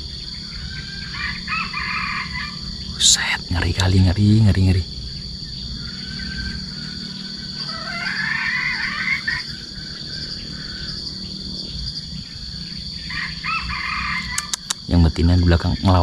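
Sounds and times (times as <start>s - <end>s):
junglefowl calling: 0.0s - 3.9s, 5.8s - 11.0s, 13.0s - 14.8s
high-pitched insect drone: 0.0s - 16.0s.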